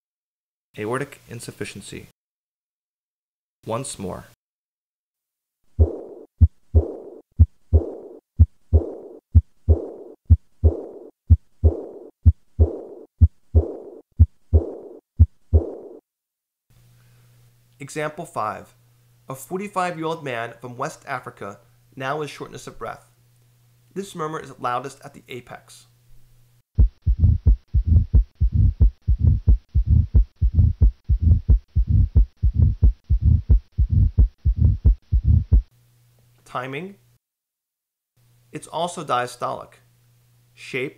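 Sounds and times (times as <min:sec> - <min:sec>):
heartbeat: 0:05.7 - 0:16.0, 0:26.8 - 0:35.7
blowing heart murmur: 0:05.8 - 0:16.0, 0:26.8 - 0:35.7.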